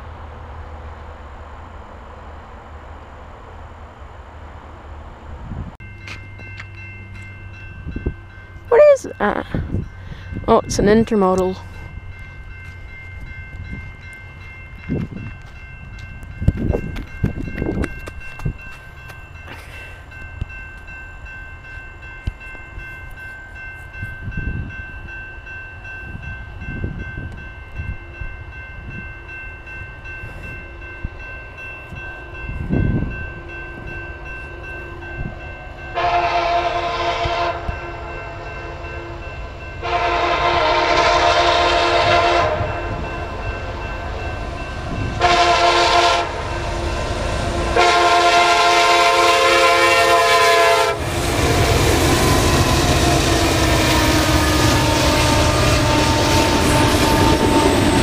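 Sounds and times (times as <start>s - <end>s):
level-crossing warning bell: 5.1s - 58.0s
wind thumping on microphone: 16.2s - 18.7s
locomotive air horn blasts: 35.9s - 39.2s, 39.8s - 43.0s, 45.1s - 46.8s, 47.5s - 51.1s, 52.3s - 57.9s.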